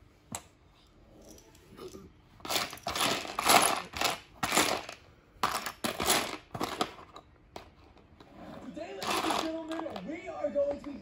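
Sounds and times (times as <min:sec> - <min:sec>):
plastic toy bricks clattering: 0:02.4 - 0:07.7, 0:09.0 - 0:10.2.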